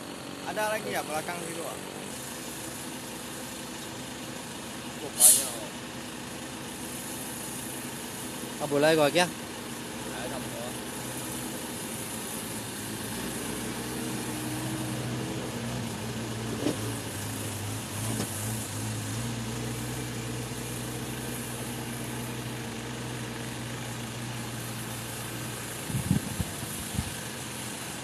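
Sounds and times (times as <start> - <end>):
diesel engine idling: 0.0 - 28.0.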